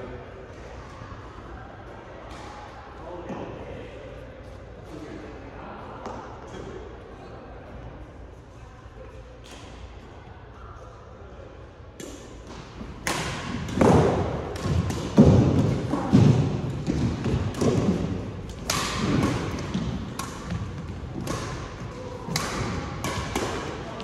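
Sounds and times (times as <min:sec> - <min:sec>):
racket hitting shuttlecock: 0:12.0 - 0:24.0.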